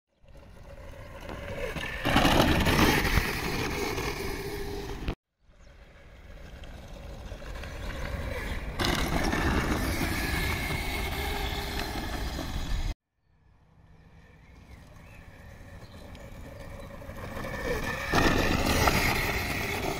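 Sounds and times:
wheels rumbling over dirt: 0.1 - 13.0, 13.8 - 19.9
electric motor whine: 5.9 - 13.0, 13.8 - 19.9.

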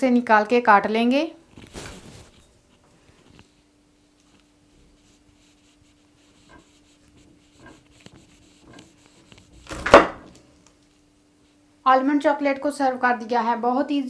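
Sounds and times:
knife scraping on wooden board: 4.8 - 10.4.

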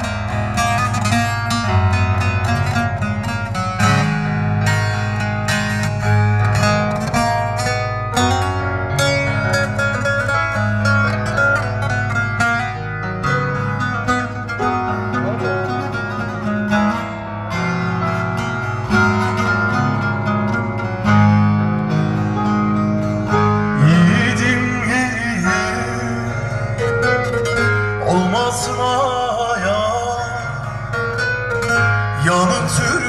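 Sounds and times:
plucked long-necked lute: 0.0 - 33.0
sustained keyboard notes: 4.7 - 28.6.

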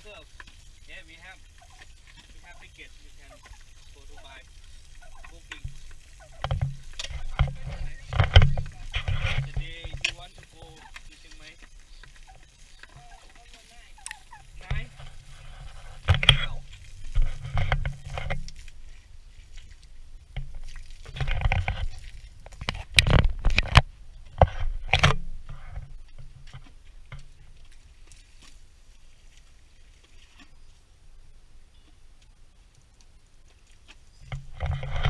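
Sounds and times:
water splashing and sloshing: 0.0 - 30.9
scrapes and sharp knocks: 5.5 - 12.2, 14.6 - 18.5, 20.4 - 27.3, 34.2 - 35.0.

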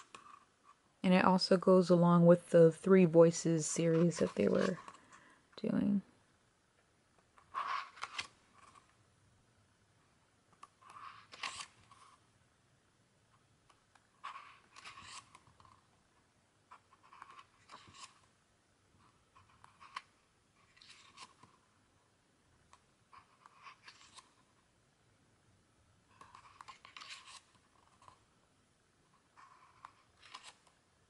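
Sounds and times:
book pages being turned: 0.0 - 0.8, 3.8 - 5.0, 7.3 - 9.0, 10.6 - 12.2, 13.9 - 15.9, 16.7 - 18.3, 19.0 - 21.7, 22.7 - 24.6, 26.1 - 28.2, 29.1 - 30.8.

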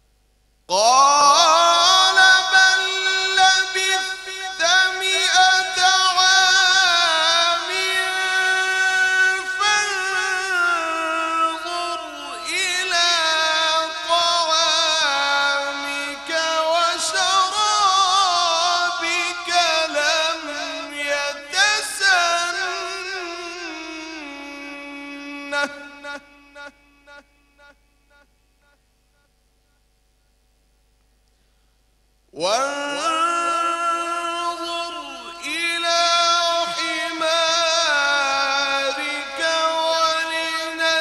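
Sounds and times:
man reciting in melodic chant: 0.7 - 28.3, 32.4 - 41.0.

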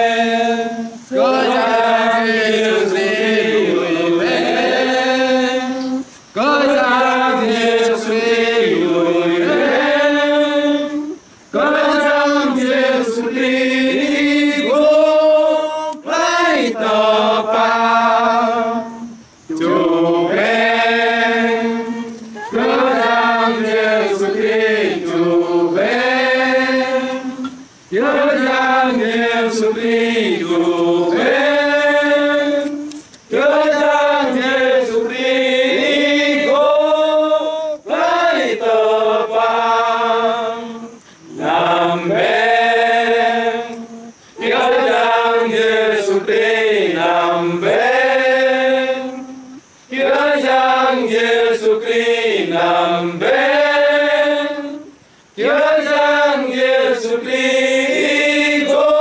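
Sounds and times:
men singing a hymn unaccompanied: 0.0 - 59.0.

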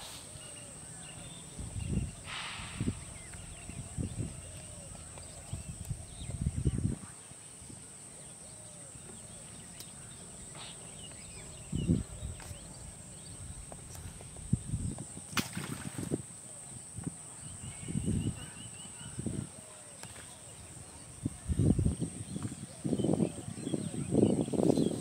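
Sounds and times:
faint bird chirps: 17.3 - 25.0.

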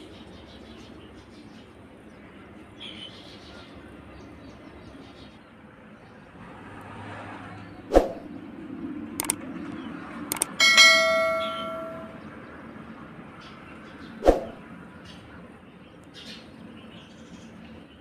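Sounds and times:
sharp clicks: 9.2 - 9.4, 10.3 - 10.6
ringing metallic clang: 10.5 - 12.2.

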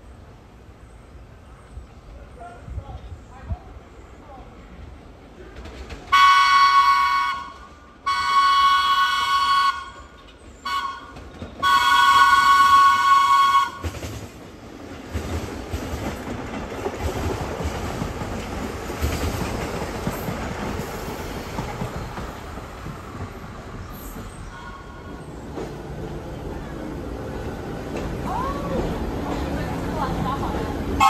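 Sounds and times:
train rumbling on rails: 0.0 - 31.0
subway train horn blasts: 6.1 - 13.9.

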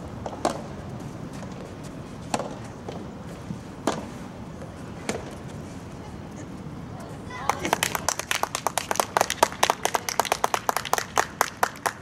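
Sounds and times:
rackets hitting tennis ball: 0.2 - 5.6.

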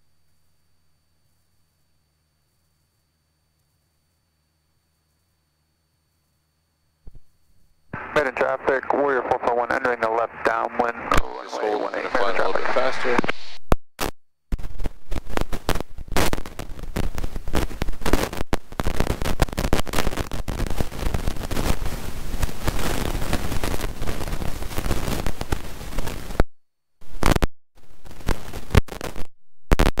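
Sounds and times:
crackling radio static: 7.9 - 30.0.

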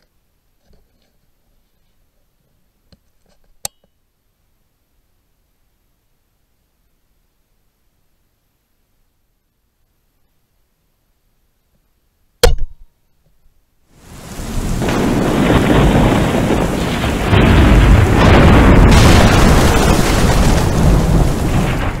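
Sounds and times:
heavy rain: 13.9 - 22.0
thunder rumbling: 14.0 - 22.0.

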